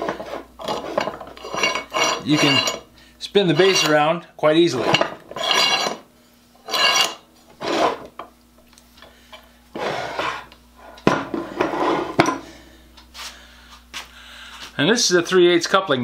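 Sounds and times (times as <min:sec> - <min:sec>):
metal scraping and clattering: 0:00.0 - 0:02.9, 0:03.5 - 0:04.1, 0:04.7 - 0:06.0, 0:06.6 - 0:08.1.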